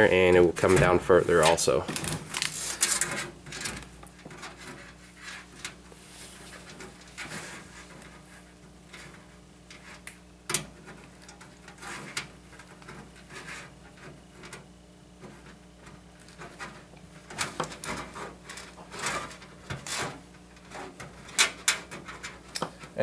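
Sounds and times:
rustling and knocks: 0.0 - 23.0
fabric rubbing against metal case: 4.3 - 10.0.

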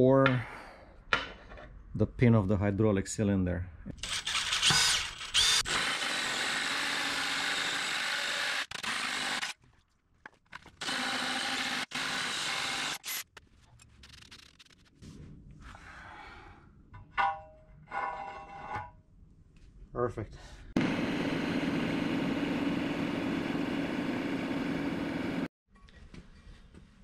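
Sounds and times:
drill hole saw cutting steel: 4.0 - 9.5, 10.8 - 13.2.

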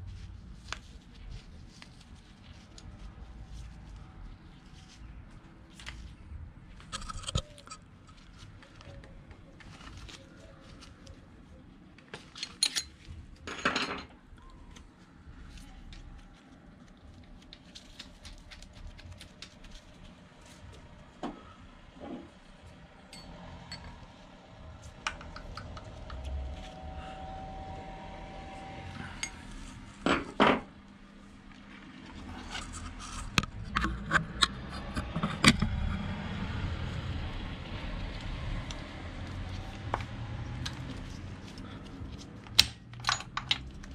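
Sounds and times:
metal tools clinking and knocking: 12.4 - 14.1, 43.0 - 43.7.

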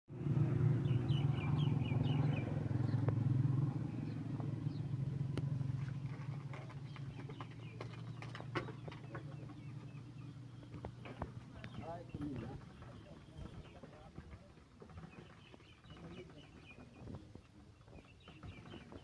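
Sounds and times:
low engine drone: 0.1 - 11.8
birds chirping: 0.2 - 19.0.

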